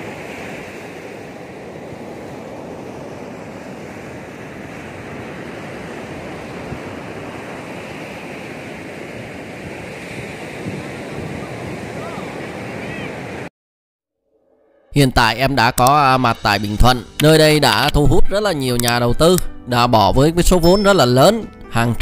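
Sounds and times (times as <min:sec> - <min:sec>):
surf washing up a beach: 0:00.0 - 0:13.5
wind on microphone: 0:00.0 - 0:13.5.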